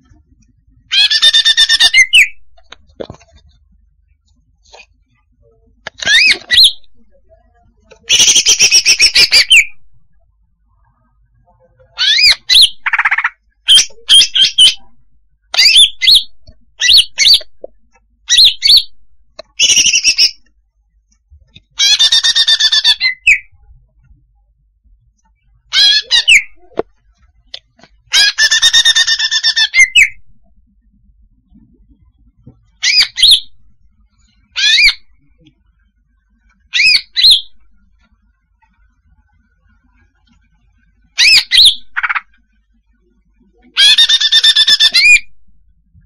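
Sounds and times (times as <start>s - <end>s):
bird chirping calls: 0.9s - 2.8s, 5.9s - 7.1s, 8.0s - 10.1s, 12.0s - 17.7s, 25.7s - 26.7s, 32.8s - 33.6s, 34.5s - 35.2s.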